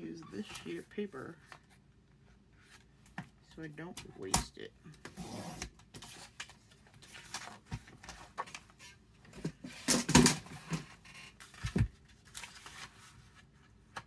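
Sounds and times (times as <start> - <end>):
paper rustling: 10.8 - 14.0.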